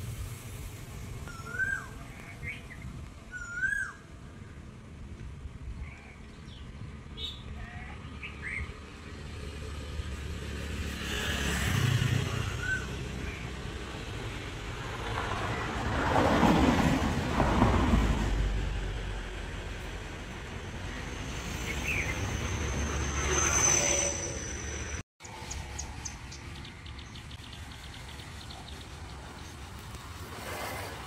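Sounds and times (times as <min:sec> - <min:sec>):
bird chirps: 0:01.3 - 0:04.1.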